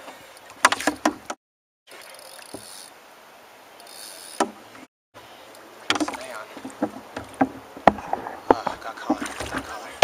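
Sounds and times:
fishing reel drag buzzing: 1.9s - 3.0s, 3.8s - 4.4s.

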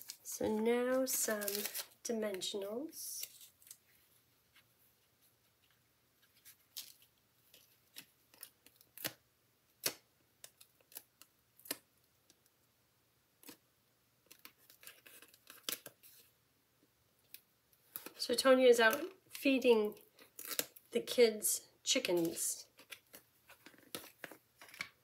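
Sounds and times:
foam pads peeling off paper: 0.9s - 2.0s.

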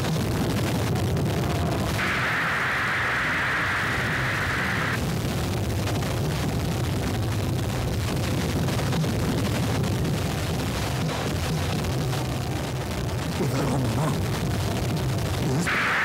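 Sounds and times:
large fire crackling: 0.0s - 16.0s
high hiss: 1.7s - 5.0s, 15.6s - 16.0s.

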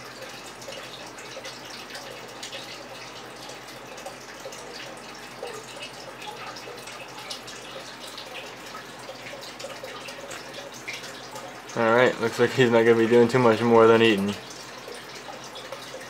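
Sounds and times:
water dripping and splashing: 0.0s - 16.0s
water trickling: 0.0s - 16.0s.

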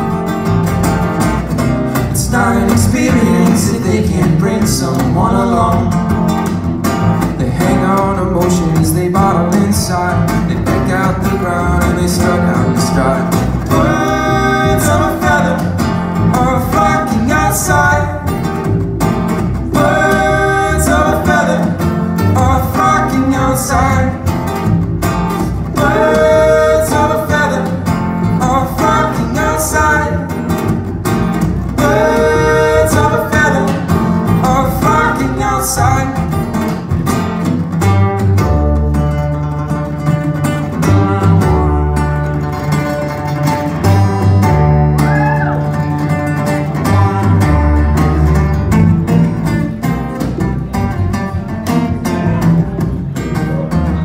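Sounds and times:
acoustic guitars: 0.0s - 54.0s
upright bass: 0.0s - 54.0s
person singing: 2.0s - 6.0s, 7.4s - 18.4s, 19.7s - 24.3s, 25.7s - 30.4s, 31.8s - 36.3s.

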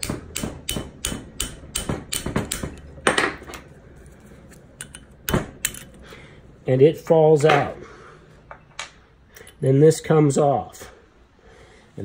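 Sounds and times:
metal tool tapping on pin: 4.8s - 6.0s.

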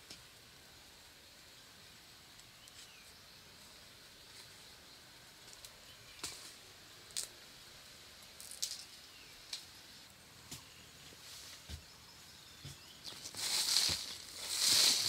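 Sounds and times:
faint forest ambience hiss: 0.0s - 15.0s
scraping crunches in leaf litter: 13.0s - 15.0s.

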